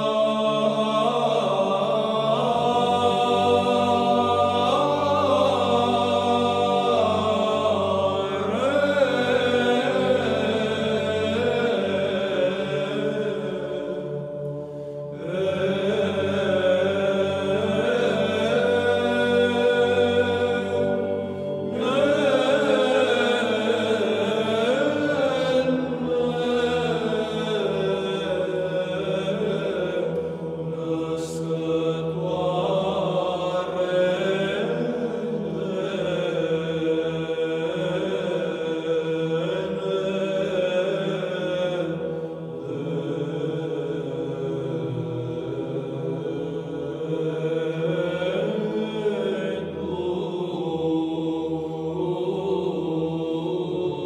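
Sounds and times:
voices chanting: 15.2s - 54.0s.

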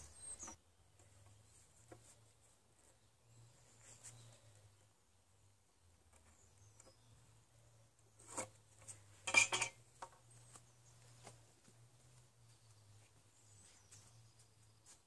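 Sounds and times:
metal square clinking on wood: 9.2s - 9.8s.

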